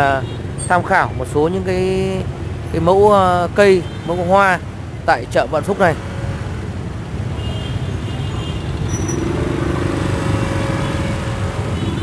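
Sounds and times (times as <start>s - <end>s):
vehicle engines rumbling: 0.0s - 12.0s
engine hum: 8.4s - 12.0s.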